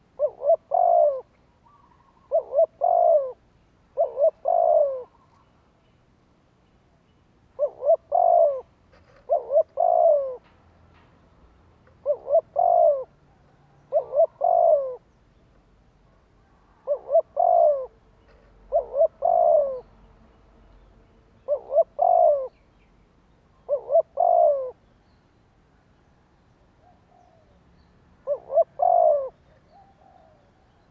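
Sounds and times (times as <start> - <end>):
dove cooing: 0.0 - 5.4, 7.6 - 10.5, 11.9 - 15.1, 16.4 - 20.0, 21.4 - 22.7, 23.6 - 24.9, 28.2 - 30.9.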